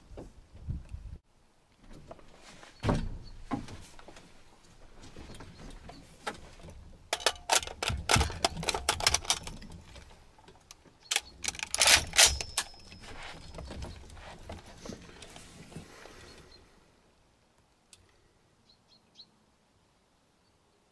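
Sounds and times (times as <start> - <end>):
rifle metallic clicks and clacks: 7.1 - 13.6.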